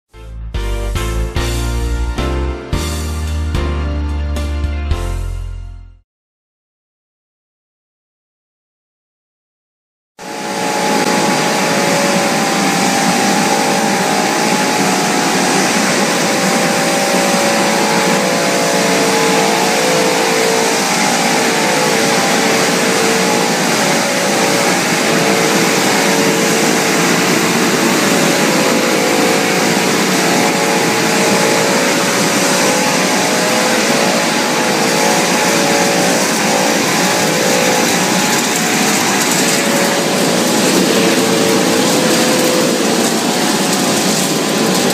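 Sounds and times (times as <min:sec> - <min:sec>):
extruder machine hiss and hum: 0:10.2 - 0:44.9
steady motor tones: 0:10.2 - 0:44.9.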